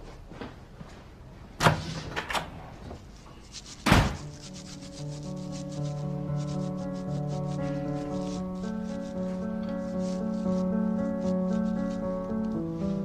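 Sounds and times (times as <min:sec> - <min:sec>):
toothbrush scrubbing teeth: 0:03.4 - 0:12.1
door shutting: 0:03.8 - 0:04.3
soft music with held notes: 0:04.2 - 0:13.0.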